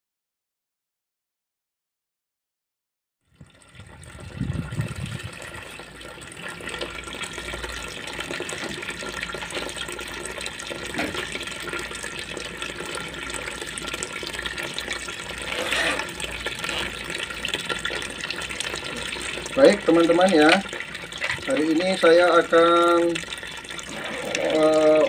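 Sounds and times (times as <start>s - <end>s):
liquid splashing into a tub: 3.3s - 25.0s.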